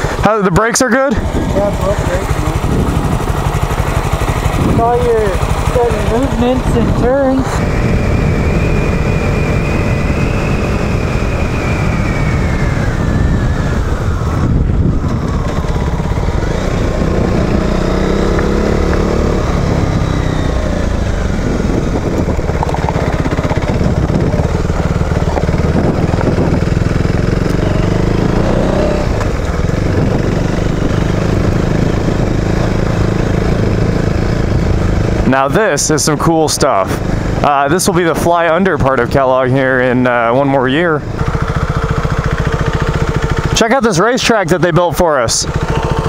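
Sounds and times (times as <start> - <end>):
motorcycle engine running: 0.0 - 46.0
wind noise on microphone: 1.2 - 5.4, 6.1 - 35.3.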